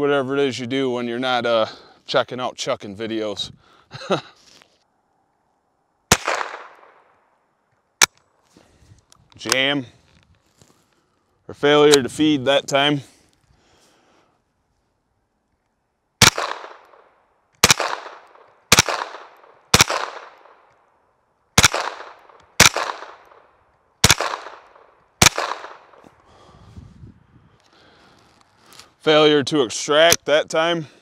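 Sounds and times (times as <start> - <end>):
rifle shots echoing: 6.1 - 7.1, 16.2 - 20.7, 21.6 - 26.0.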